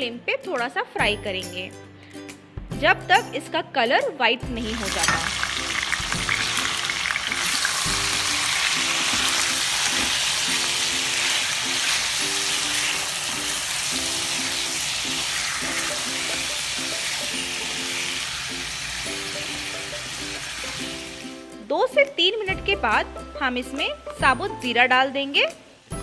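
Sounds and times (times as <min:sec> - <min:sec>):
soft background music: 0:00.0 - 0:26.0
chicken sizzling in hot oil: 0:04.5 - 0:21.5.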